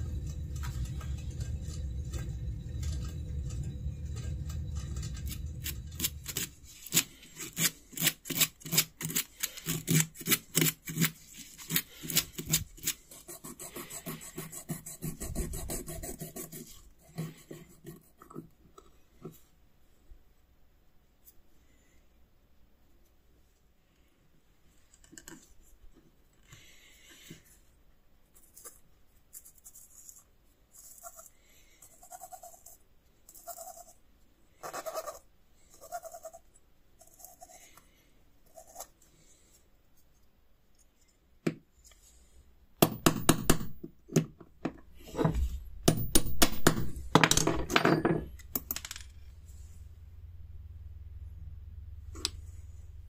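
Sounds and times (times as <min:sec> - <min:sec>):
low motor hum: 0:00.0 - 0:07.2, 0:49.3 - 0:53.0.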